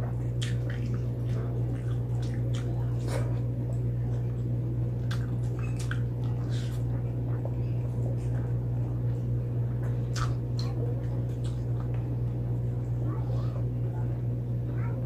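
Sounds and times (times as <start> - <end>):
steady low hum: 0.0 - 15.0
wet mouth clicks and smacks: 0.4 - 1.1, 5.0 - 6.8, 10.1 - 12.0.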